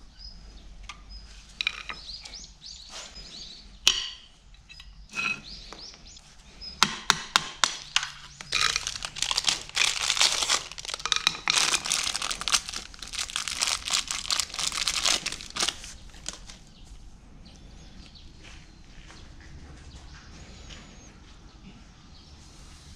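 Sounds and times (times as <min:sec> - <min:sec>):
plastic packaging crinkling and tearing: 0:07.8 - 0:16.8
metal parts clicking: 0:07.9 - 0:16.4.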